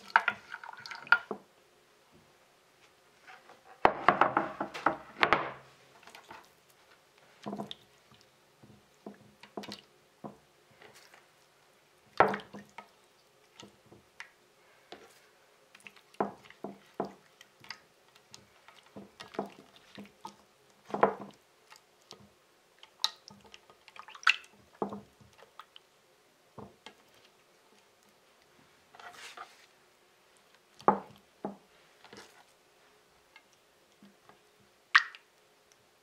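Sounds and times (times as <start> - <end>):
wet squelches of fish: 22.8 - 25.9, 34.9 - 35.4.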